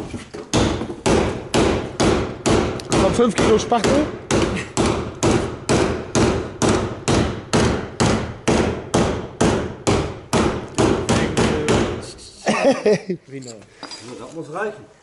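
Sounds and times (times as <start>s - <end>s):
hammer beating sheet metal: 0.5s - 12.1s.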